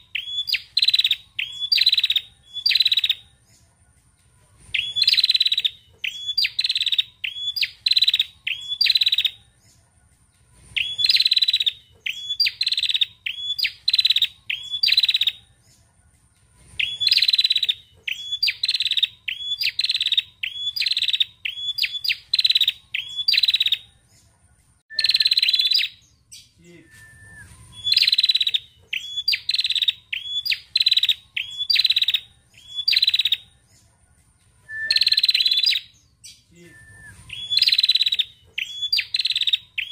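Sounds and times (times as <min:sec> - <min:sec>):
bird calling in sharp chips: 0:37.3 - 0:39.9.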